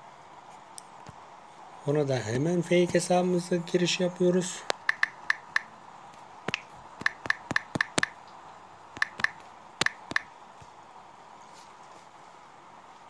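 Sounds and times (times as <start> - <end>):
faint steady hiss: 0.0 - 13.0
phone keyboard key clicks: 4.7 - 5.7, 6.5 - 8.2, 9.0 - 10.3.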